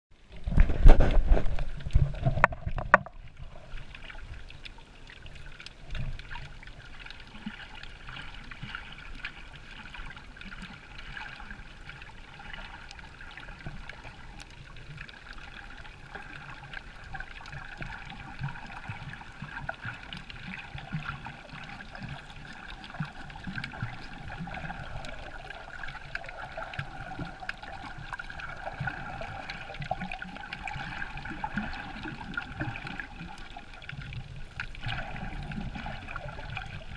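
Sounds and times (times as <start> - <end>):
muffled underwater water noise: 0.1 - 36.9
faint clicks underwater: 0.3 - 36.9
water splash: 0.4 - 3.9.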